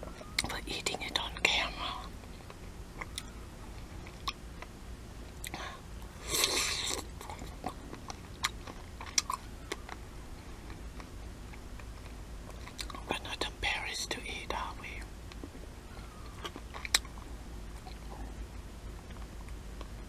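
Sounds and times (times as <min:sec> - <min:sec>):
pickle being bitten and chewed: 0:02.4 - 0:04.7, 0:05.4 - 0:10.0, 0:16.3 - 0:18.1.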